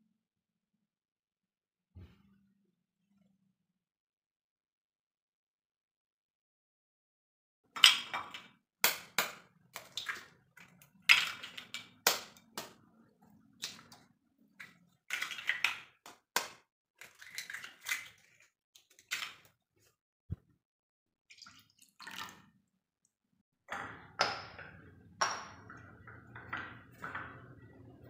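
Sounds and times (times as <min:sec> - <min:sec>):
eggs cracking and dropping: 0:07.8 - 0:19.5.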